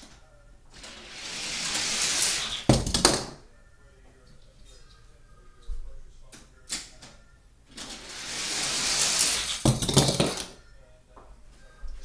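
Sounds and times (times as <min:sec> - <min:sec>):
toy cars rolling down plastic track: 0:00.8 - 0:03.3, 0:07.7 - 0:10.6
toy cars clattering on hard floor: 0:00.8 - 0:03.4, 0:07.7 - 0:10.6.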